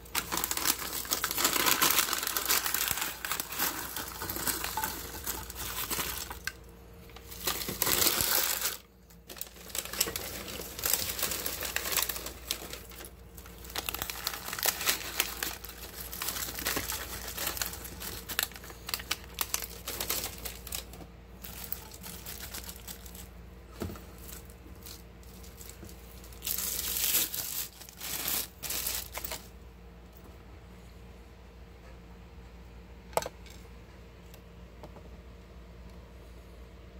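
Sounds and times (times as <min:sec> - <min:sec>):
paper wrappers crinkling: 0:00.0 - 0:29.5.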